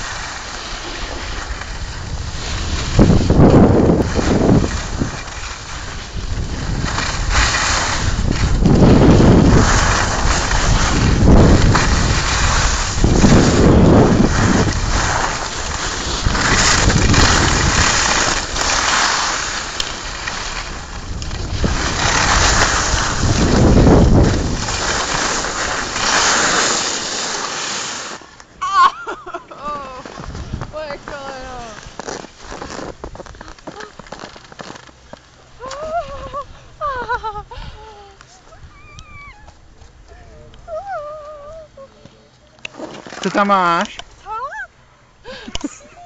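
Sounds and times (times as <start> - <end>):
ski edges scraping snow: 0.0 - 38.6, 42.6 - 44.5
wind buffeting microphone: 1.2 - 26.2, 30.1 - 32.1.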